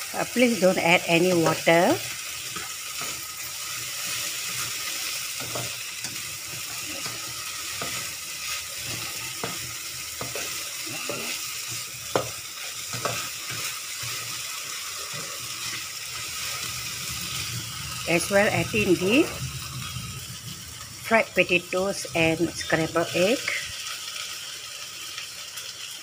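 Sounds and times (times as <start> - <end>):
food sizzling in a wok: 0.0 - 26.0
spatula scraping and knocking pan: 4.0 - 15.9.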